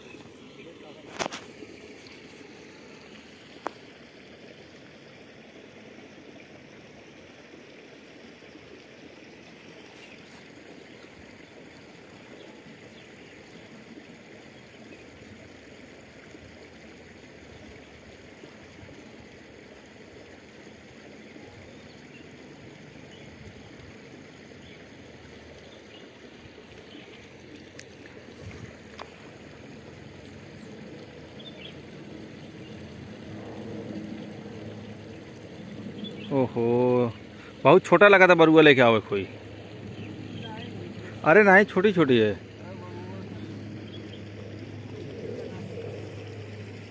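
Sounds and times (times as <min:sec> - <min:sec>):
outdoor background hiss: 0:00.0 - 0:46.9
faint ticks: 0:27.6 - 0:28.2, 0:28.8 - 0:29.4.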